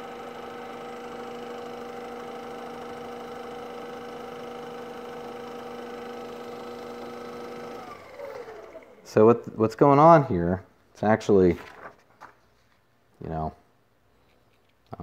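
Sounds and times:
motor humming steadily: 0.0 - 9.2.

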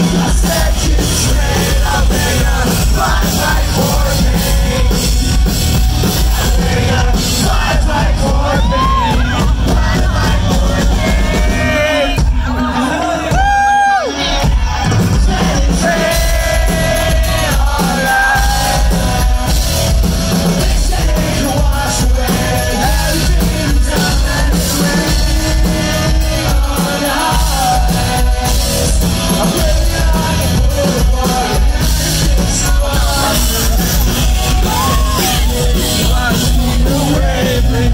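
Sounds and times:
drum and bass beat: 0.0 - 37.9
lead singer singing: 0.0 - 37.9
live rock band: 0.0 - 37.9.

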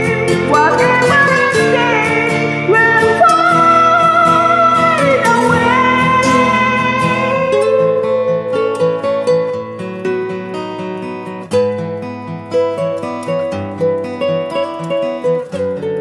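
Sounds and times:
woman singing a ballad: 0.0 - 9.4
backing track with guitar: 0.0 - 16.0.

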